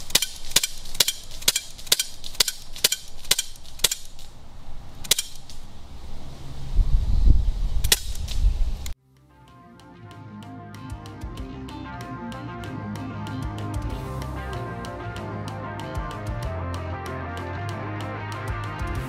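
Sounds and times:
bb pistol firing pops: 7.8 - 8.4
faint music: 9.0 - 19.0.

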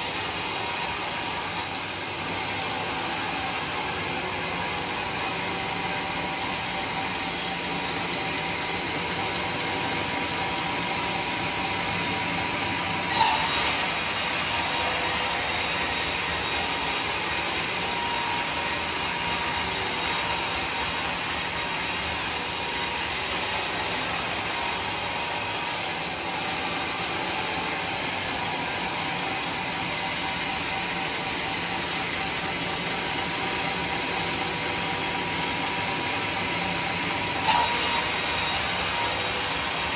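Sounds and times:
band saw cutting log: 0.0 - 2.6, 13.0 - 29.6, 37.3 - 39.9.

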